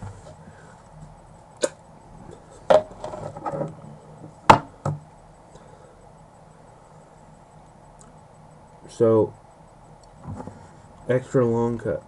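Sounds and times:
sharp knocks: 4.5s - 5.0s.

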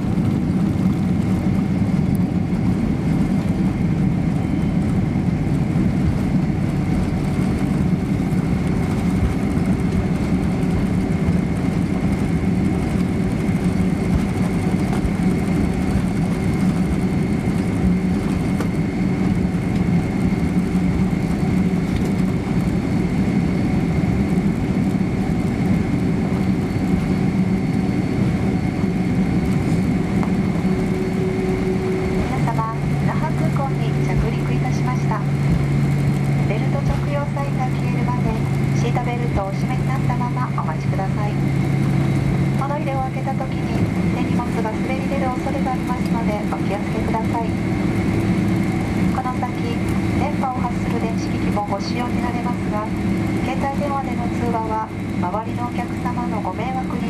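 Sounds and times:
jet engines idling in cabin: 0.0s - 57.0s.

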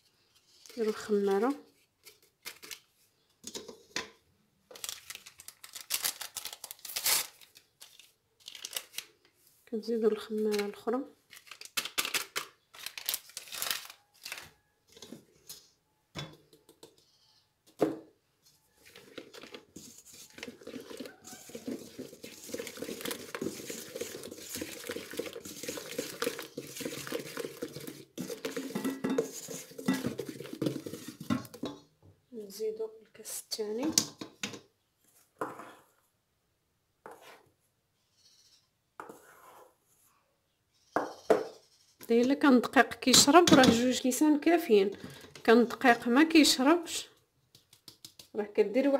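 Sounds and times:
whisk scraping in bowl: 18.8s - 31.7s
kitchen utensils knocking: 28.6s - 30.1s.

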